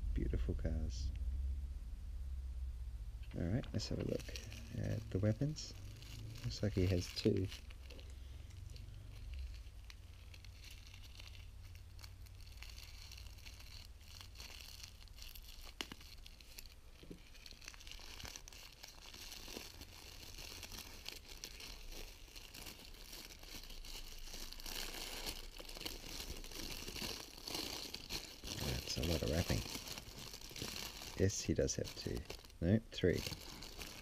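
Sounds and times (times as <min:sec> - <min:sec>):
packaging crinkling and tearing: 0:03.3 - 0:34.0.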